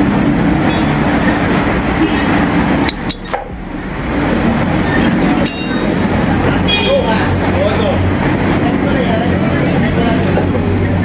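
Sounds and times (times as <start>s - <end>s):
loud mechanical rumble: 0.0s - 11.0s.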